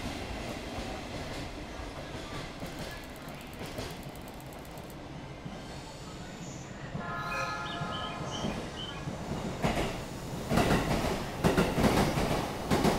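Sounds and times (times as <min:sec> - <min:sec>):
railway wheels clacking over joints: 0:00.8 - 0:05.0, 0:08.4 - 0:12.9
multi-tone squeal: 0:07.0 - 0:09.0.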